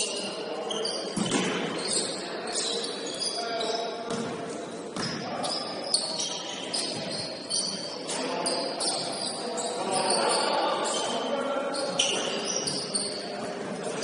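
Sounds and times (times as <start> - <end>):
players' voices: 0.0 - 14.0
sneakers squeaking: 0.0 - 14.0
basketball bouncing: 4.1 - 4.4, 5.0 - 5.2.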